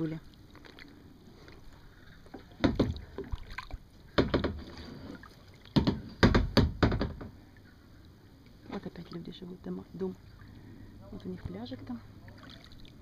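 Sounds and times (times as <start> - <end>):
kayak paddle splashing: 0.2 - 6.2, 12.2 - 13.0.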